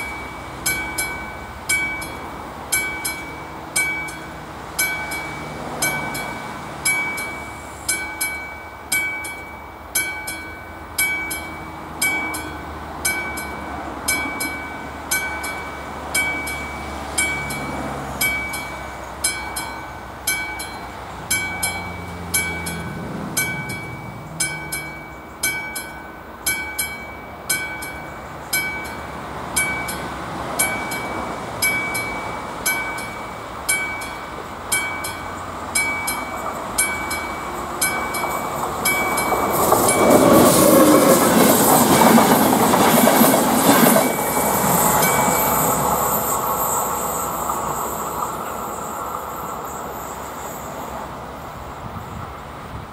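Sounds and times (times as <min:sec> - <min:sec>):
level-crossing warning bell: 0:00.0 - 0:52.8
passenger train rumbling past: 0:00.0 - 0:52.9.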